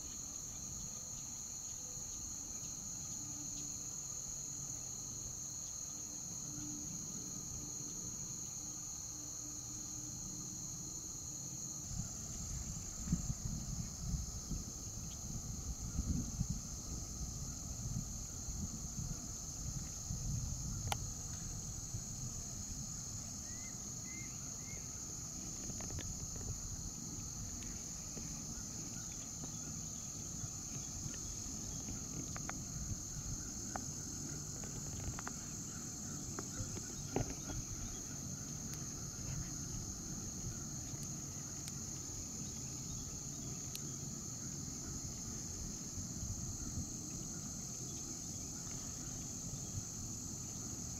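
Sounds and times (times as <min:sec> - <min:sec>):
insects chirping: 0:00.0 - 0:50.9
faint ticks: 0:19.8 - 0:21.8, 0:33.4 - 0:44.5.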